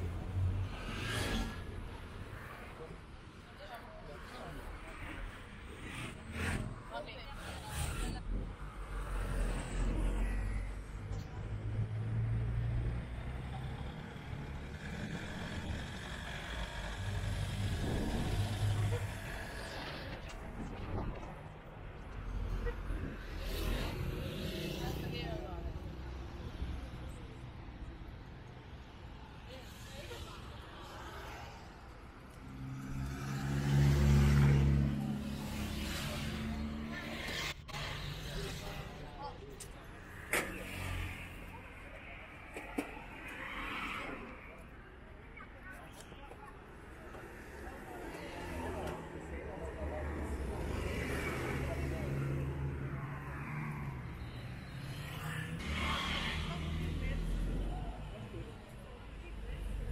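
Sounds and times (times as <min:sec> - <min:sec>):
truck engine rumble: 0:10.8 - 0:23.2.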